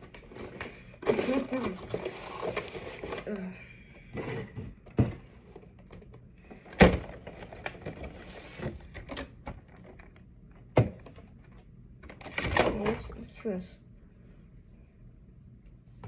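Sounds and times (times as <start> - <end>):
plastic blister tray crackling: 0.0 - 3.3.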